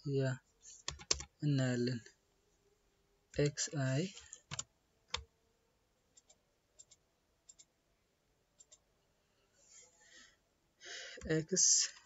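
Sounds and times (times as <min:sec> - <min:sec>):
computer mouse clicks: 0:06.1 - 0:07.7, 0:08.6 - 0:08.8.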